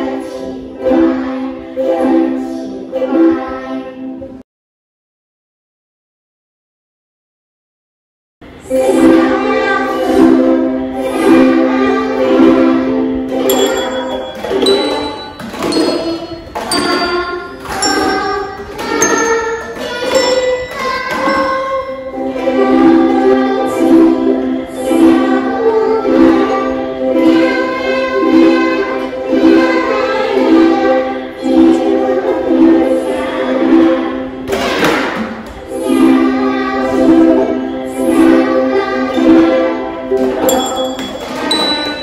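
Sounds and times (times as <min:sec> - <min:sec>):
children singing: 0:00.0 - 0:04.2, 0:08.5 - 0:42.0
ukuleles strumming: 0:08.7 - 0:42.0
handbells ringing notes: 0:13.4 - 0:22.6, 0:40.4 - 0:42.0.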